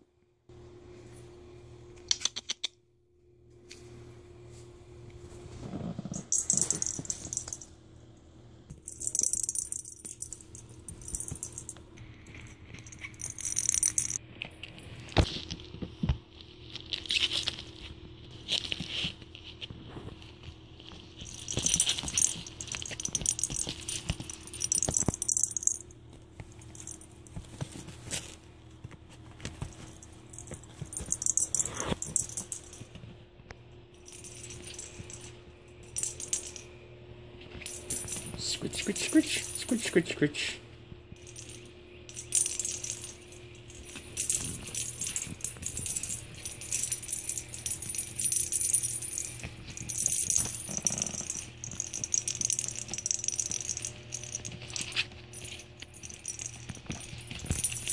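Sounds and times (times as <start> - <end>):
faint steady hum: 0.0 - 57.9
small bells jingling: 6.2 - 7.7, 8.8 - 14.2, 21.2 - 27.4, 29.6 - 32.9, 34.0 - 36.7, 37.5 - 40.1, 41.2 - 57.9.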